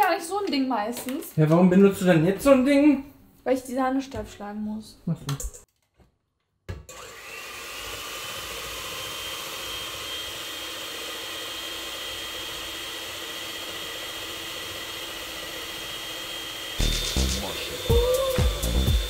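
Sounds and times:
electric hand mixer whirring: 6.7 - 19.0.

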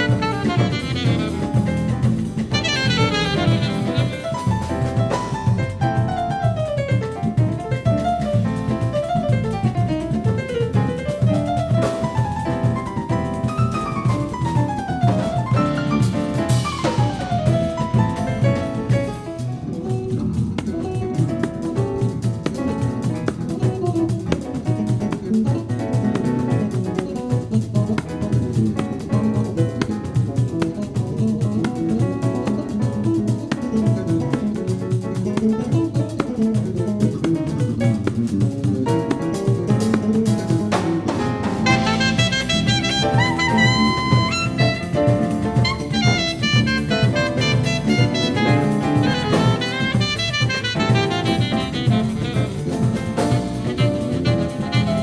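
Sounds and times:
saxophone: 0.0 - 5.1, 26.6 - 55.0
drum kit groove: 0.0 - 55.0
electric bass: 0.0 - 55.0
instrumental jazz band playing: 0.0 - 55.0
percussion strikes: 0.0 - 55.0
piano: 0.0 - 55.0.

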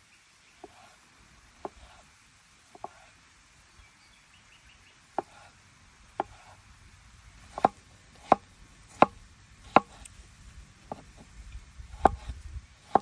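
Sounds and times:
knife chopping on wooden board: 0.6 - 1.0, 1.6 - 2.0, 2.7 - 3.1, 5.2 - 5.5, 6.2 - 6.6, 7.5 - 10.1, 10.9 - 11.3, 11.9 - 13.0.

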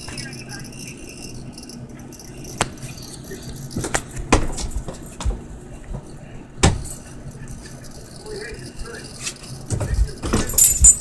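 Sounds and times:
low steady hum: 0.0 - 11.0
dog collar tags clinking: 7.8 - 11.0.

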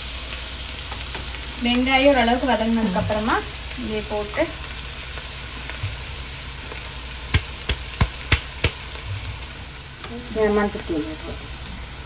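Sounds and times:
shallots sizzling in oil: 0.0 - 12.0
metal spatula knocking pan: 7.3 - 8.8.

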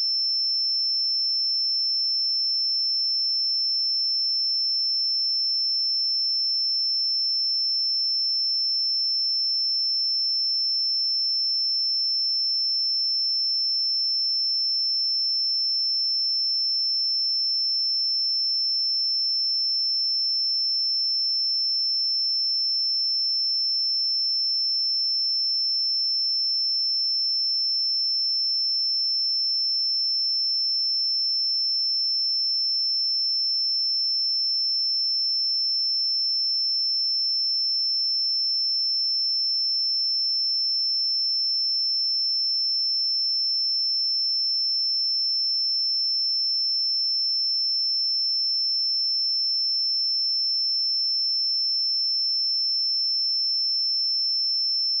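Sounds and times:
high-pitched sine test tone: 54.6 - 55.0.

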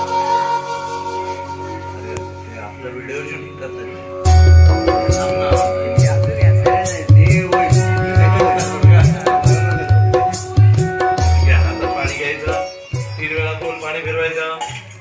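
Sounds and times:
held steady notes: 0.0 - 15.0
tabla bass drum strokes: 4.3 - 14.8.

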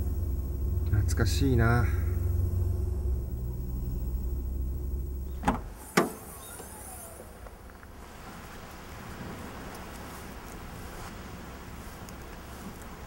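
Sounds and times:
road rumble inside car: 0.0 - 13.0
car trunk lid clacking open: 5.3 - 6.3.

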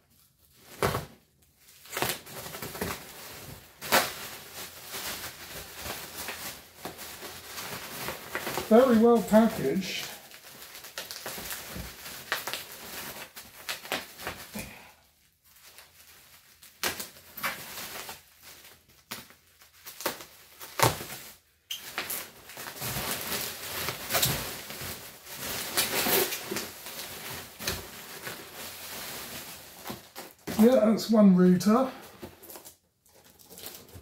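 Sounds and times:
bubble wrap crinkling: 0.0 - 34.0
packing tape peeling: 1.8 - 3.0, 19.1 - 30.6, 32.4 - 34.0.

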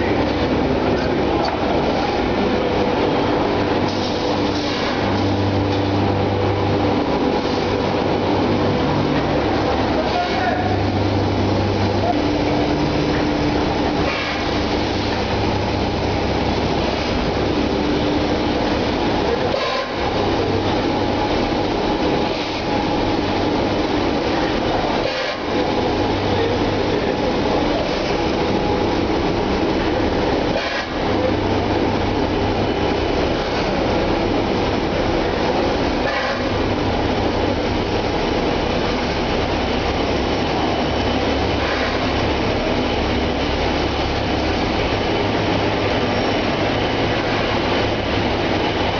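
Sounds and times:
factory machinery running: 0.0 - 48.9.

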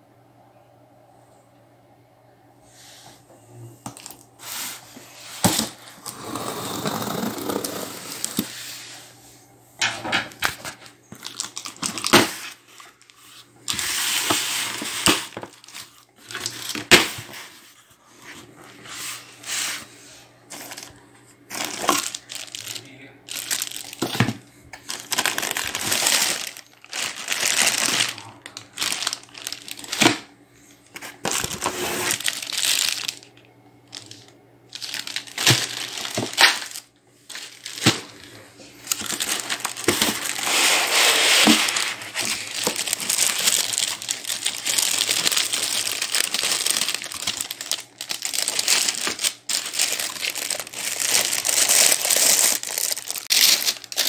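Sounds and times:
plastic wrapping crinkling: 3.8 - 8.7, 10.4 - 19.9, 20.5 - 54.0
packing tape tearing: 5.4 - 8.5, 10.4 - 12.6, 21.5 - 30.2, 31.2 - 33.2, 34.0 - 38.1, 38.8 - 54.0.

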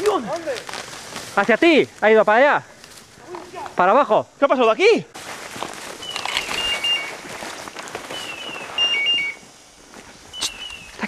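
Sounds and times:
brush rustling underfoot: 0.0 - 11.0
electronic beeper chirps and beeps: 8.4 - 9.4.

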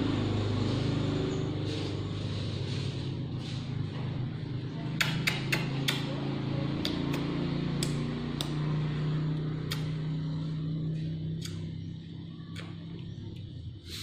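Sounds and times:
low motor hum: 0.0 - 14.0
sharp clicks: 6.8 - 8.6, 9.6 - 10.0.

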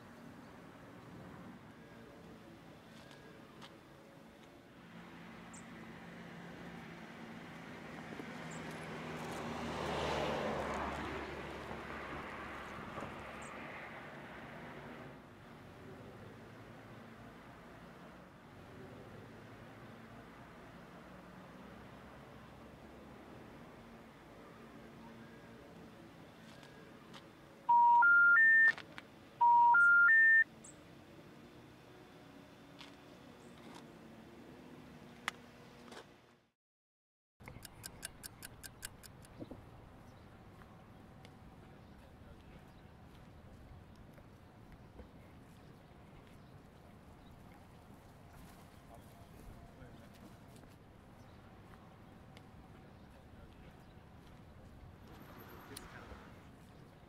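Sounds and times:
road vehicle passing by: 0.2 - 28.6, 39.4 - 57.0
rising phone tone beeps: 27.7 - 28.8, 29.4 - 30.4.

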